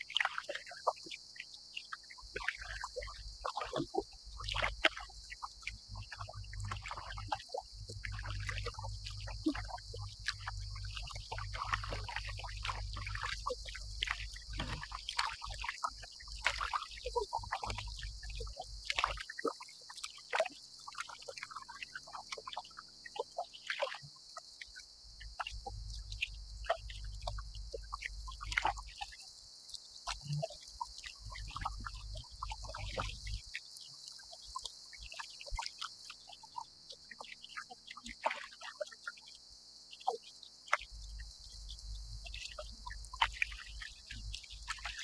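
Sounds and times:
water dripping: 0:00.0 - 0:39.4, 0:40.0 - 0:45.0
waves lapping against kayak hull: 0:02.2 - 0:19.3.

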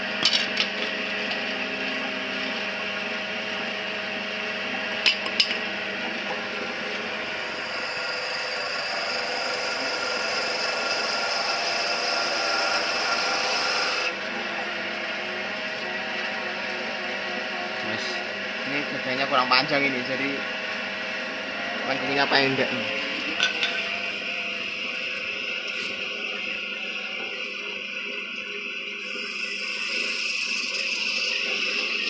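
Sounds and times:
machine motor humming: 0:00.0 - 0:32.0
blades shaving wood: 0:05.6 - 0:17.0.

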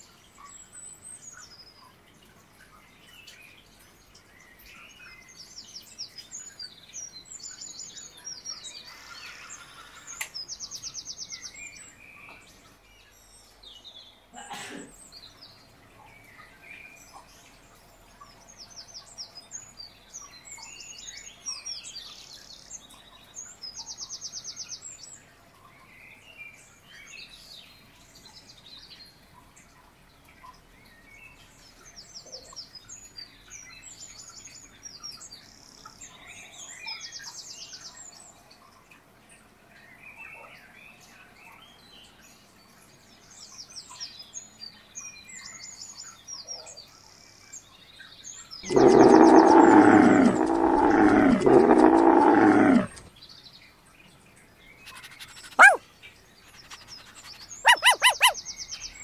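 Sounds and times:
faint birds chirping: 0:48.4 - 0:59.0
large animal drawn-out call: 0:48.7 - 0:53.1, 0:54.9 - 0:55.8, 0:56.6 - 0:58.4
sharp bird chirp: 0:56.6 - 0:58.4.

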